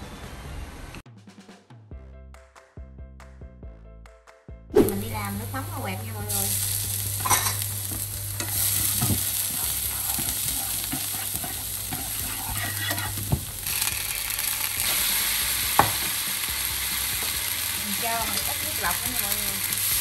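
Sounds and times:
garlic sizzling in oil: 4.8s - 20.0s
utensil knocking against pan: 15.8s - 16.2s.

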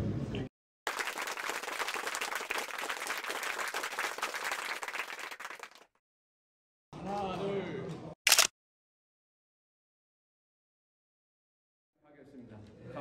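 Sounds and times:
audience applauding: 0.9s - 5.9s.

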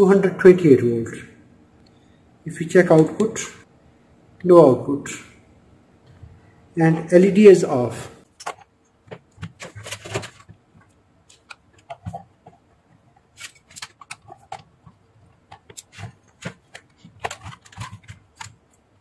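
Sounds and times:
hands handling metal case: 8.4s - 18.6s.

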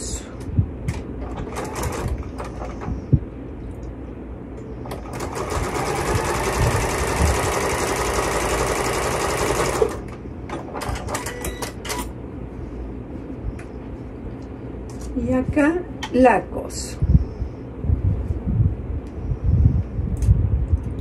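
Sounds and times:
sewing machine stitching: 1.2s - 2.8s, 4.9s - 10.0s.

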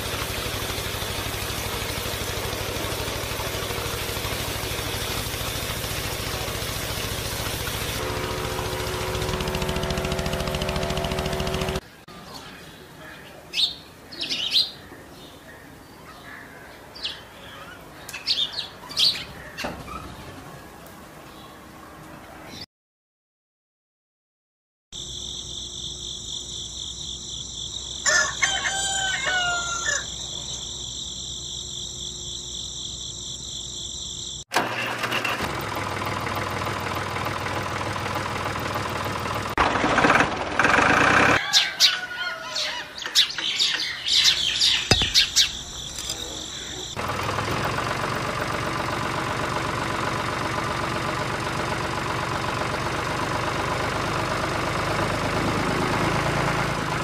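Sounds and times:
engine running: 0.0s - 11.8s, 34.5s - 41.4s, 43.4s - 57.0s
birds chirping: 0.1s - 22.7s, 41.4s - 47.0s
rooster crowing: 28.0s - 30.2s, 41.3s - 43.1s.

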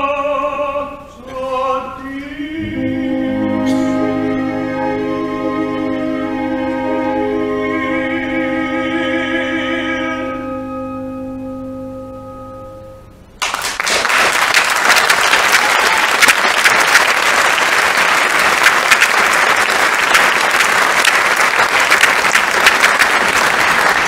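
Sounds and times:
opera singing held note: 3.5s - 4.2s
audience applause: 13.4s - 24.0s.

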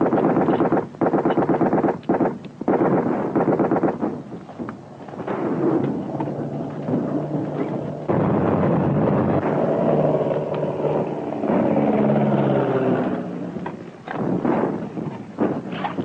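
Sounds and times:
gunfire cracks: 0.0s - 4.2s
dense continuous rumble: 0.0s - 16.0s
droning hum: 2.5s - 16.0s.

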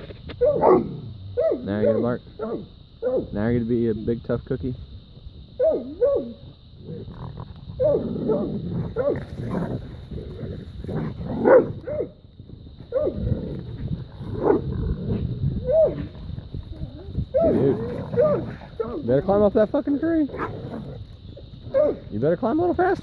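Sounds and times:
dogs growling and snarling: 5.8s - 12.2s, 12.8s - 22.1s.

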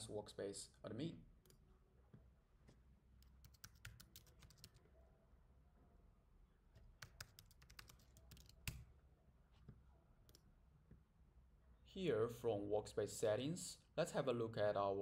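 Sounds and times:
faint keyboard typing: 3.2s - 4.9s, 6.8s - 8.9s.

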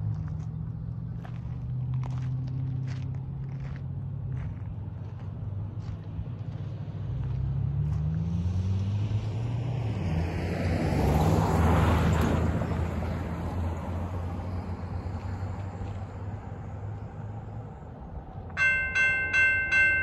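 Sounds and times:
low engine rumble: 0.0s - 8.2s
car driving past: 6.2s - 17.9s.

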